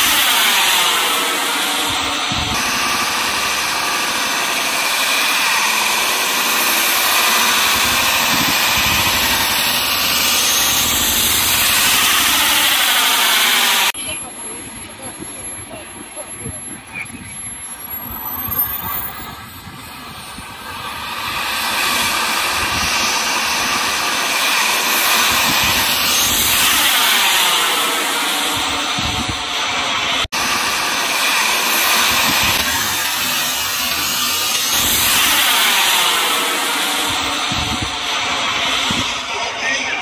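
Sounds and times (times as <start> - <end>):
jet turbine whine and rush: 0.0 - 14.0, 17.7 - 40.0.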